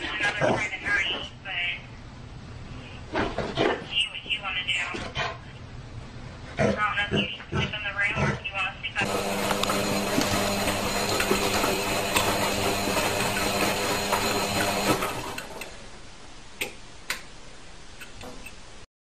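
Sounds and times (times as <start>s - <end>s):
washing machine running: 9.0s - 16.0s.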